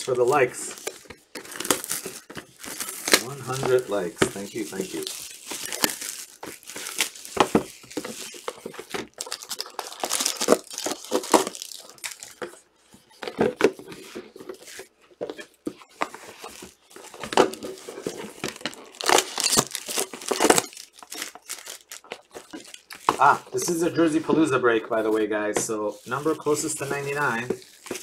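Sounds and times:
plastic wrap crinkling and tearing: 0.0 - 28.0.

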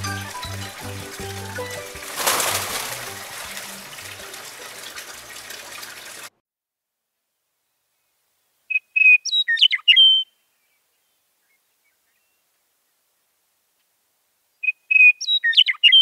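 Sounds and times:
songbird whistling: 8.7 - 10.4, 14.6 - 16.0.

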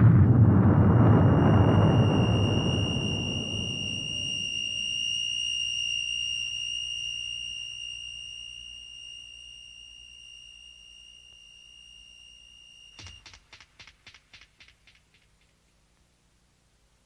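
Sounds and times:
low rumble of explosion: 0.0 - 4.7
high-pitched electronic tone: 0.6 - 13.4.

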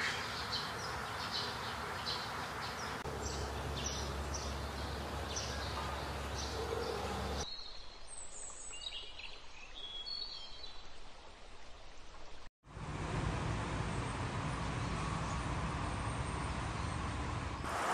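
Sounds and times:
small birds chirping: 0.0 - 10.8.

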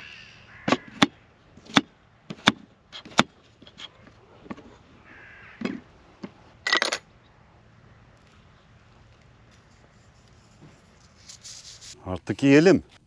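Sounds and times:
bird calling: 0.0 - 1.8, 3.7 - 6.5.

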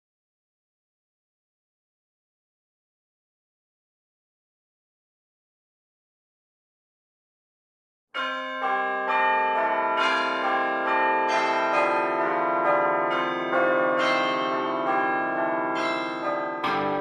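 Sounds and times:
church bells ringing: 8.2 - 17.0.

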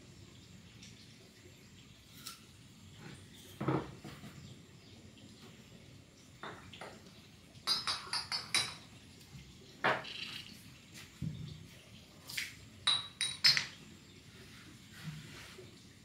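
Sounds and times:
light clinks and taps: 6.4 - 8.9, 12.3 - 13.8.

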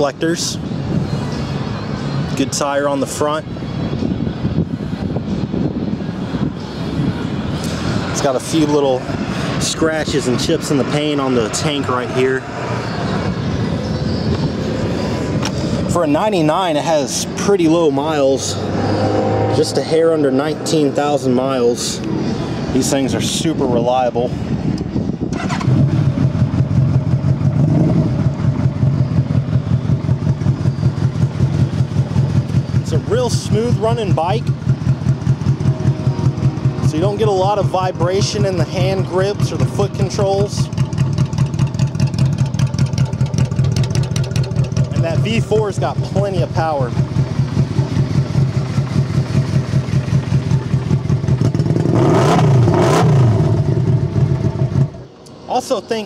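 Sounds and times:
motorcycle engine idling: 24.4 - 51.9, 53.4 - 55.2.

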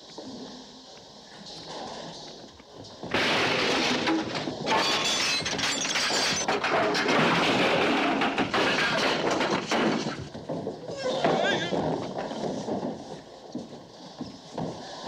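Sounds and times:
wood and glass smashing: 3.1 - 10.2
body crashing into wooden frames: 3.1 - 10.4.

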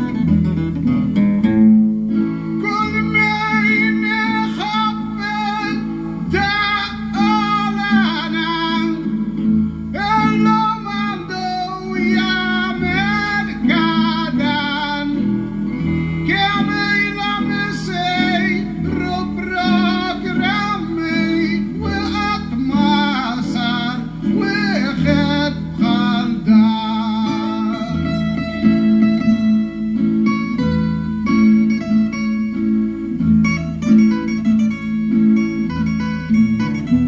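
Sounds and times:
acoustic guitars: 0.0 - 37.0
man singing: 2.6 - 30.0.

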